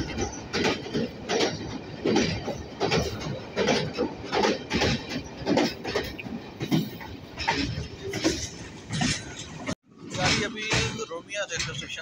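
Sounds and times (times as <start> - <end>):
train running rumble: 0.0 - 12.0
train wheels clattering: 0.0 - 12.0.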